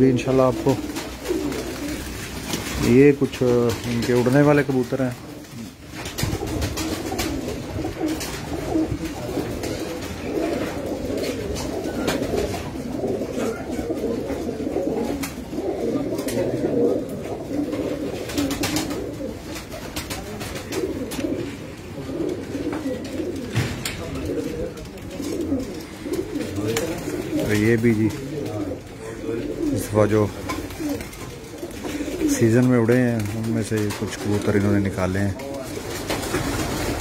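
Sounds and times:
pigeons cooing: 0.0s - 37.0s.

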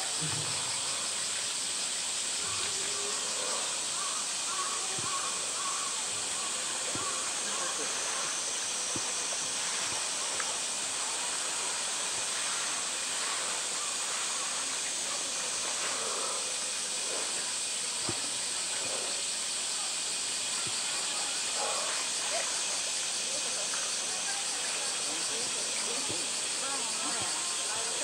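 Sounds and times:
water hissing: 0.0s - 28.0s.

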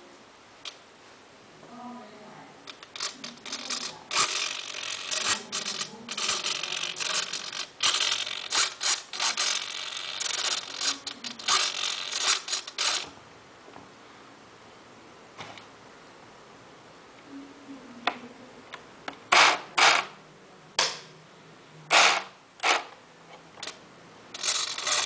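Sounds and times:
electric motor whirring: 2.7s - 13.1s, 24.4s - 25.0s.

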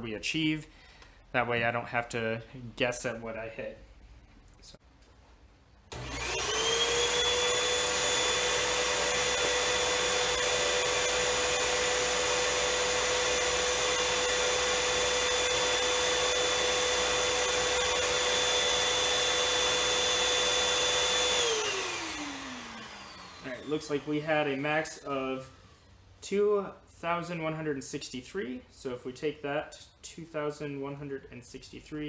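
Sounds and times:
vacuum motor whine: 5.9s - 24.6s.

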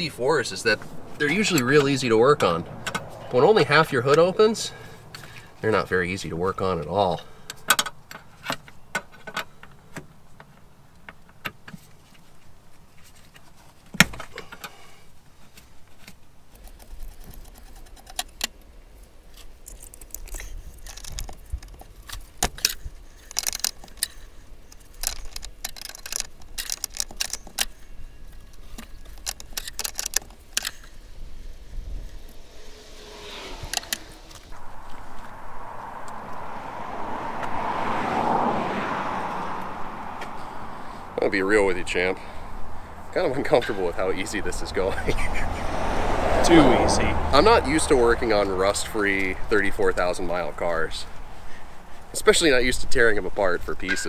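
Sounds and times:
wrench and metal fittings clinking: 28.8s - 30.9s.

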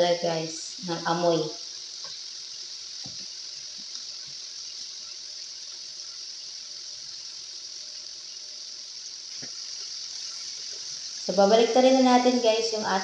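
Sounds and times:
livers sizzling in frying pan: 0.0s - 13.0s
faint pops: 3.0s - 4.9s.

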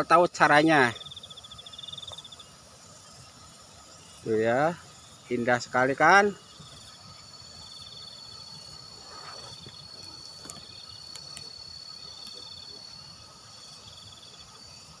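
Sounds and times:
insect high-pitched trill: 0.0s - 15.0s
insect pulsed chirping: 0.0s - 15.0s.

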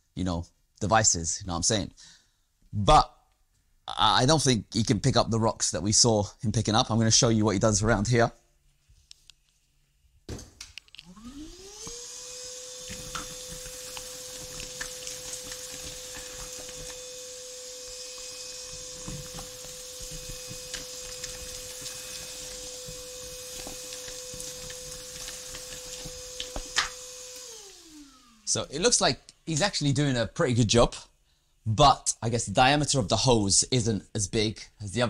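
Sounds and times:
vacuum motor whine: 11.0s - 28.7s
tile chips rattling in hose: 12.8s - 27.0s.

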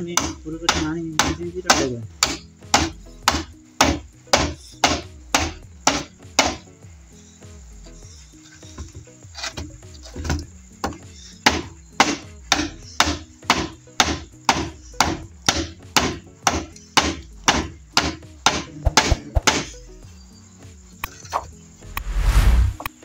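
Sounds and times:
axe chopping bamboo: 0.0s - 6.6s, 9.4s - 19.8s.

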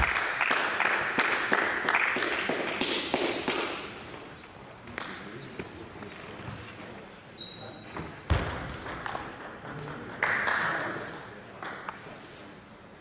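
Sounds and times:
table tennis balls tapping: 8.3s - 12.0s.

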